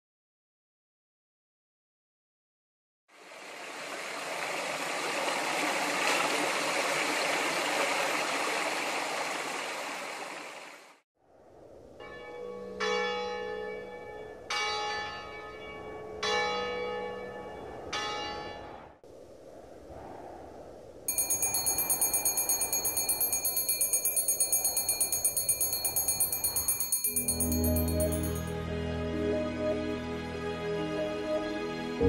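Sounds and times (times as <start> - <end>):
water rushing: 3.1 - 11.0, 21.1 - 28.4
church bell tolling: 12.0 - 18.8, 21.1 - 28.5.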